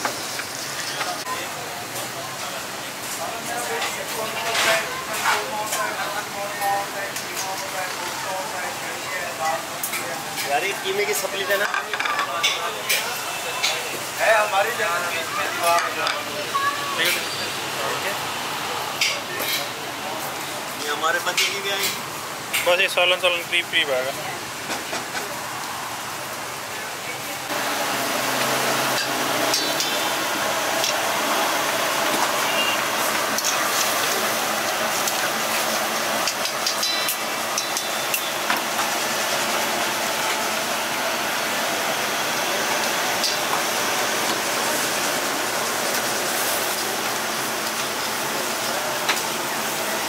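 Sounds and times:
hiss of cooking: 0.0s - 11.7s, 12.4s - 50.0s.

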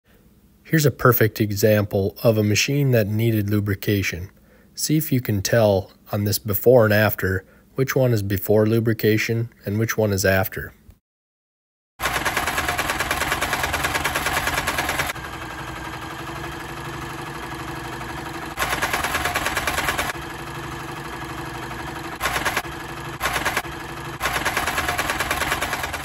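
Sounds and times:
sewing machine clattering: 12.0s - 26.0s.

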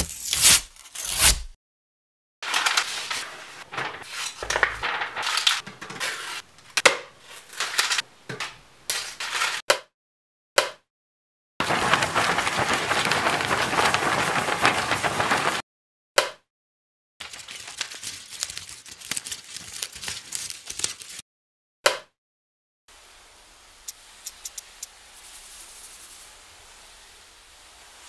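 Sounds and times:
paper crinkling and rustling: 2.4s - 6.4s, 7.3s - 8.0s, 11.6s - 15.6s, 17.2s - 21.2s
rushing surf-like hiss: 23.0s - 28.0s.

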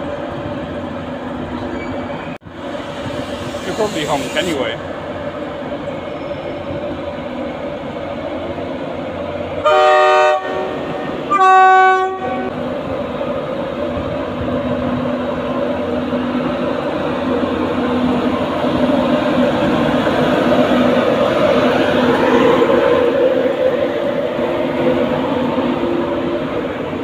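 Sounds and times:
locomotive running hum: 0.0s - 27.0s
two-tone train horn: 9.6s - 12.5s.

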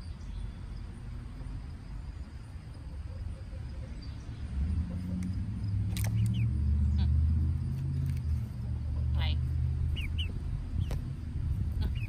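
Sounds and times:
chicks chirping: 9.9s - 11.0s, 11.8s - 12.0s.

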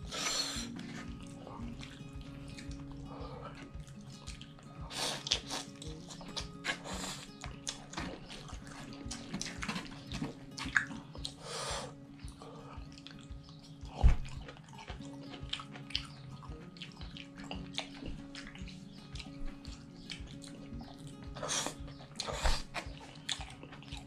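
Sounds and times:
noodles slurped and chewed: 2.7s - 13.3s, 21.3s - 24.0s.

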